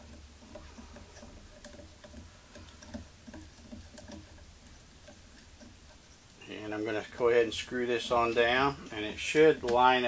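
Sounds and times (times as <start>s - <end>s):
screw thread ticking: 0.0s - 10.0s.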